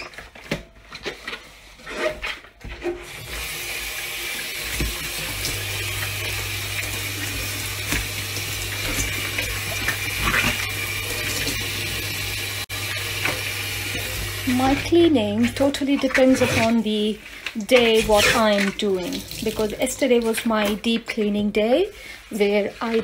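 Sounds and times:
tap water running into sink: 3.0 - 16.8, 17.6 - 21.0.

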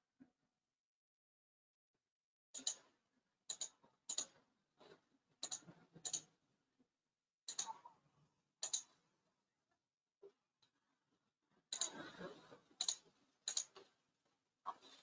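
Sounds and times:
faint computer mouse clicks: 3.5 - 4.3, 5.4 - 6.3, 7.5 - 7.8, 8.6 - 8.9, 12.8 - 13.9.

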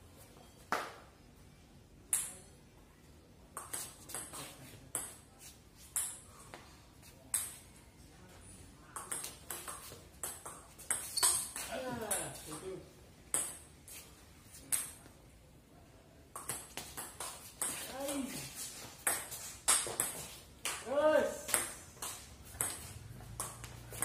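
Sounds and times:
ping-pong ball pocks: 16.3 - 17.8, 21.5 - 24.0.

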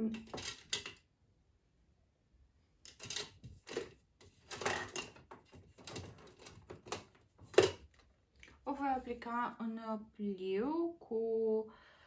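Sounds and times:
makeup brushes rummaged on a tabletop: 0.0 - 1.1, 2.8 - 8.1.

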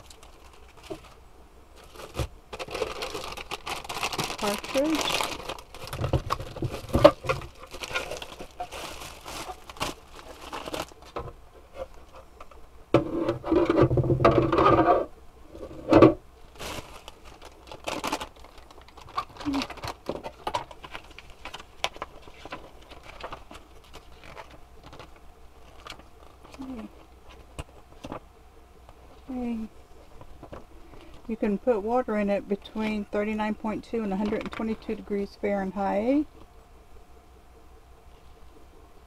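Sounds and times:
plastic packaging crinkling: 0.0 - 11.2, 16.5 - 28.2.

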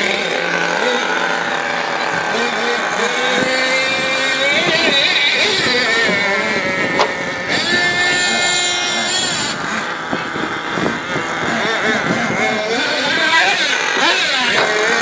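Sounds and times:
small nitro engines buzzing: 0.0 - 15.0.

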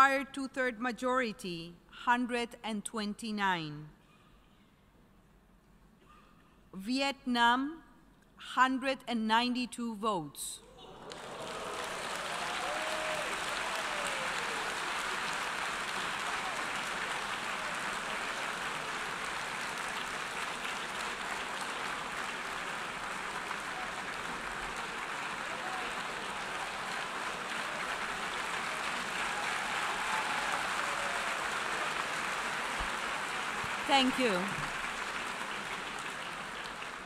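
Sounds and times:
crowd applause: 10.8 - 37.0.

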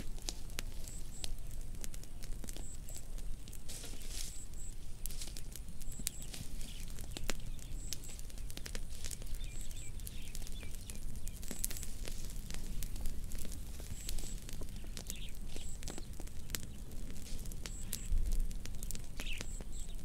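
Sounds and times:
fire crackling and popping: 0.0 - 20.0
faint high chirps: 3.8 - 11.8.

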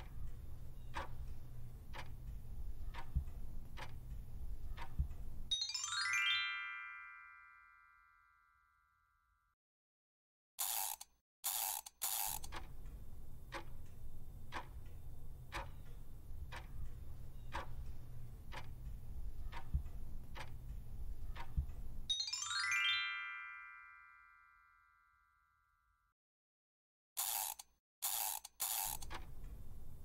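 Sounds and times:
clock ticking: 0.0 - 5.5, 11.5 - 22.1, 28.2 - 30.0
rising chime: 5.5 - 8.7, 22.1 - 25.4.

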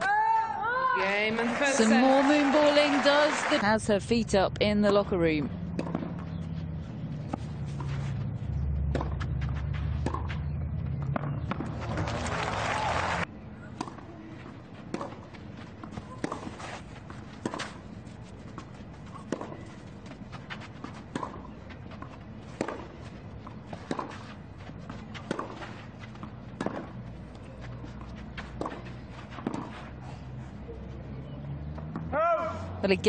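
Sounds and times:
tennis ball racket hits: 15.8 - 16.8, 23.5 - 27.0.

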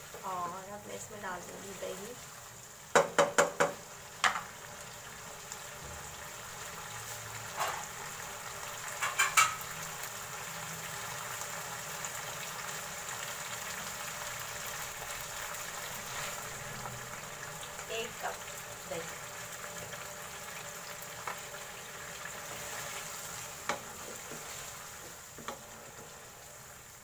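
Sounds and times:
gravy bubbling and sizzling: 0.0 - 27.0
wooden spoon knocking on pan: 2.9 - 4.5, 9.0 - 9.6, 23.6 - 25.7.

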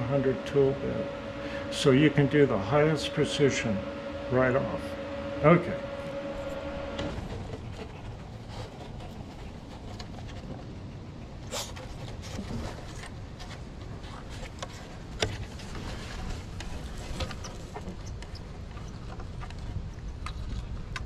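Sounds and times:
dog sniffing: 6.5 - 13.3.

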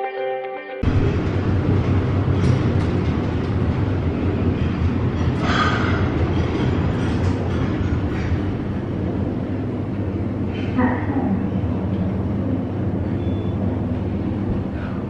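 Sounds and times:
background music: 0.0 - 0.9
lift car low rumble: 0.8 - 15.0.

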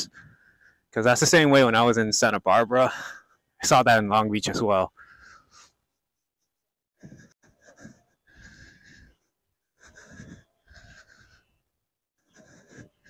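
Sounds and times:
person breathing hard: 0.0 - 0.9, 4.9 - 6.0, 7.0 - 11.6, 12.2 - 13.0.

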